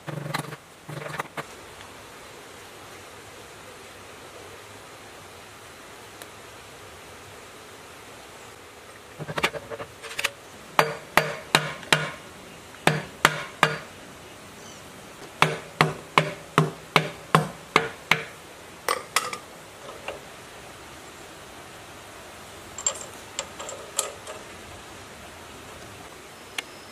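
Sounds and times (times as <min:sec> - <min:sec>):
hammer striking metal: 0:10.8 - 0:12.2, 0:12.9 - 0:13.9, 0:15.4 - 0:18.3.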